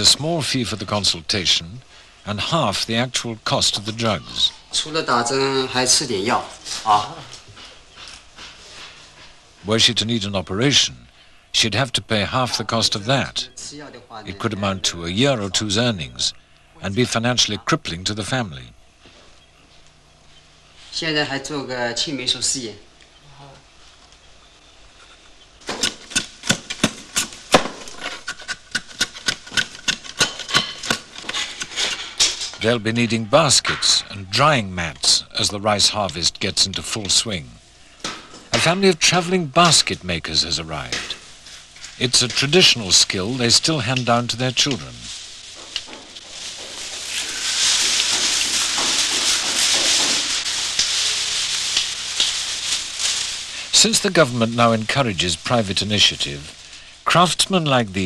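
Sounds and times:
bamboo splitting with knife: 0:25.7 - 0:31.8
weaving strips rustling and scraping: 0:40.5 - 0:58.0.

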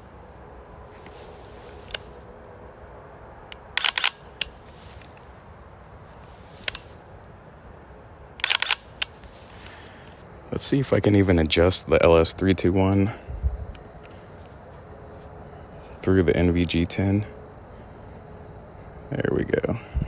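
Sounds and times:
trigger mechanical clicks: 0:03.5 - 0:05.2, 0:08.4 - 0:09.2.

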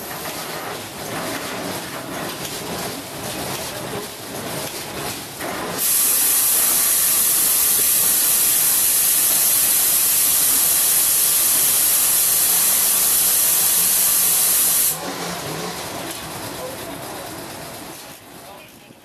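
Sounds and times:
compressed air hissing: 0:05.8 - 0:15.0.

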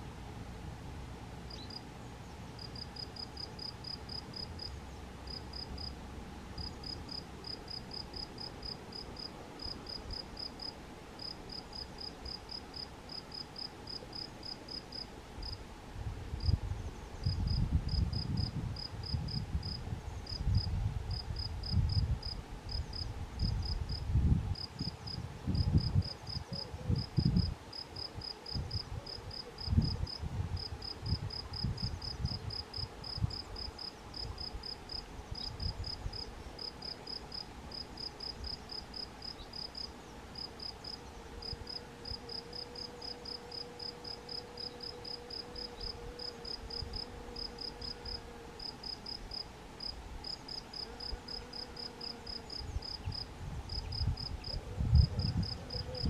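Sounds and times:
wind rumble on microphone: 0:15.4 - 0:36.4, 0:52.5 - 0:56.0
cricket chirping: 0:24.6 - 0:56.0.

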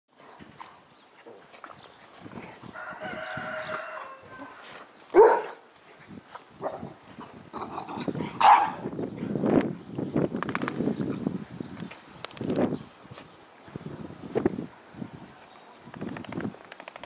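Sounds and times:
dog barking: 0:05.1 - 0:05.6, 0:08.4 - 0:08.8.

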